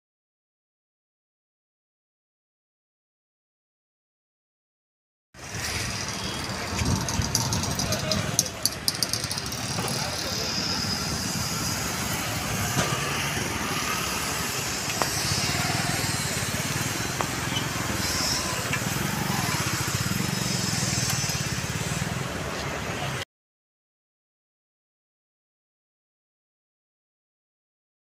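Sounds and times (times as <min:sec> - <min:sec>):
cars passing: 0:05.4 - 0:23.2
motorbikes passing: 0:05.4 - 0:23.2.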